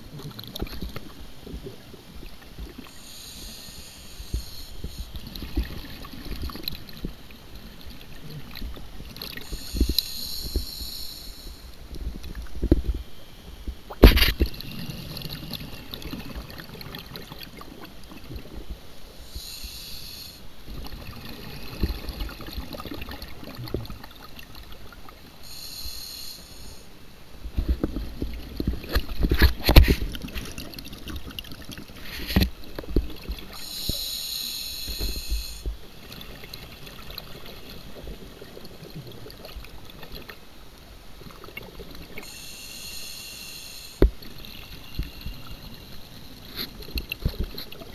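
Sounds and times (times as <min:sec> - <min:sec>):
regulator hissing inhalation: 0:02.9 - 0:05.2, 0:09.4 - 0:11.7, 0:19.2 - 0:20.5, 0:25.4 - 0:26.9, 0:33.6 - 0:35.7, 0:42.2 - 0:46.0
exhaled bubbles rumbling: 0:20.7 - 0:25.1.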